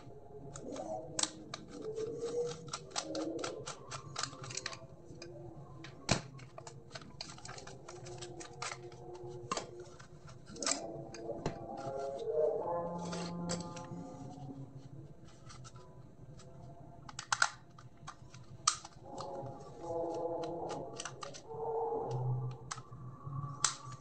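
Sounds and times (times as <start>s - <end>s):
screwdriver clicking on plastic parts: 0.5s - 5.3s, 6.1s - 12.3s, 13.0s - 14.0s, 16.4s - 21.5s.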